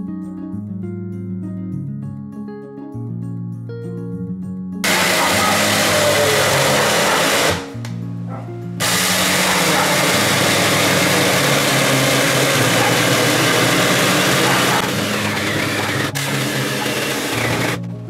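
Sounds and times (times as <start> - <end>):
background music: 0.0 - 18.0
chainsaw cutting wood: 4.8 - 7.8, 8.8 - 17.8.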